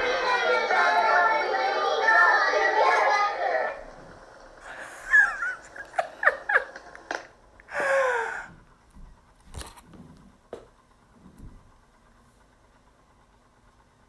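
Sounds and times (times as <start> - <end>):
woman laughing and squealing: 4.6 - 6.8.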